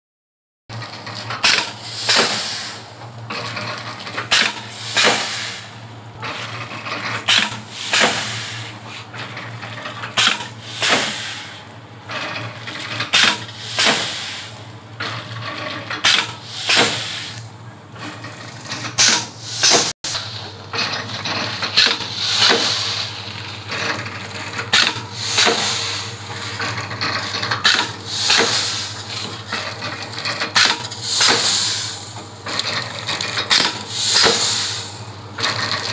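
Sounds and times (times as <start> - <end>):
pneumatic sealing jaws hissing: 1.5 - 2.9, 4.3 - 5.8, 7.3 - 8.8, 10.2 - 11.6, 13.2 - 14.6, 16.0 - 17.4, 19.0 - 20.5, 21.8 - 23.2, 24.8 - 26.6, 27.7 - 29.1, 30.6 - 32.2, 33.5 - 35.0.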